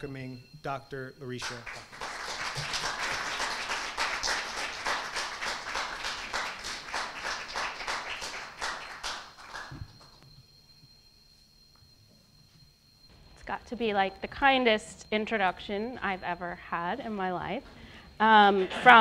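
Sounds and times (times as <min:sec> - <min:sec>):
audience applauding: 0:01.4 - 0:10.2.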